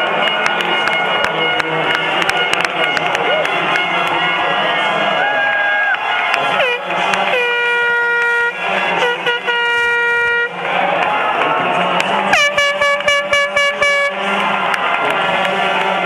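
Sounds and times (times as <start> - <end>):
air horn blasts: 0.0 - 10.9, 11.9 - 16.0
crowd cheering: 0.0 - 16.0.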